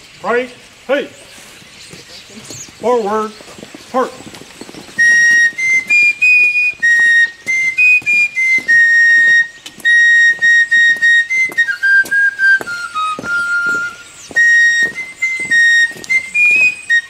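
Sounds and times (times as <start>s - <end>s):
fife playing a march: 4.9s - 17.0s.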